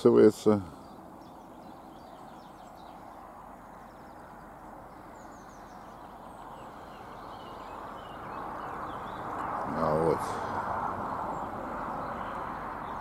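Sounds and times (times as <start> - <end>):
faint birdsong chirps: 0.0 - 13.0.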